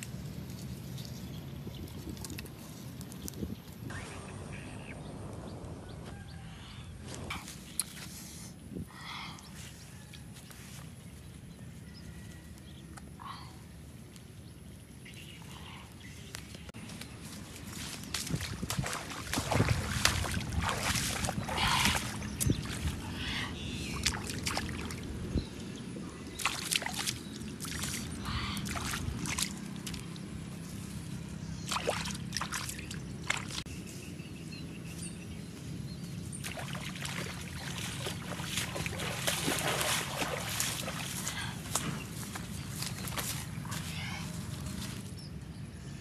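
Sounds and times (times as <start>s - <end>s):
steady low hum: 12.6s - 46.0s
rustling through grass: 16.3s - 23.0s, 33.5s - 45.2s
splashing in shallow water: 17.3s - 25.2s, 26.2s - 30.4s, 31.6s - 33.7s, 36.3s - 44.6s.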